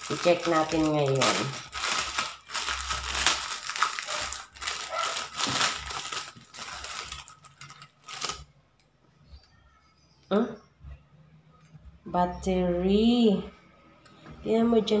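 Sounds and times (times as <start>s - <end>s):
bubble wrap crinkling: 0.0s - 8.5s.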